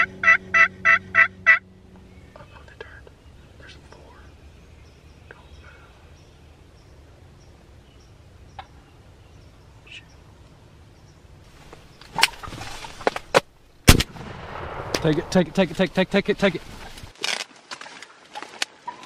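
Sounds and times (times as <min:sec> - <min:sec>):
faint bird chirps: 0:01.9 - 0:11.2.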